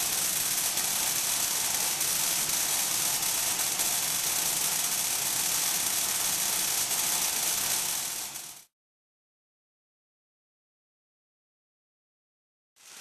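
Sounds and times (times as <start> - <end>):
tesla coil arc crackling: 0.0 - 8.6.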